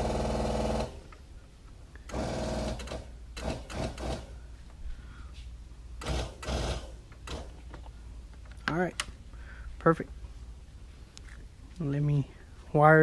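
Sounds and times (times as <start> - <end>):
electric pump buzzing: 0.0 - 1.1, 2.1 - 4.3, 6.0 - 7.6.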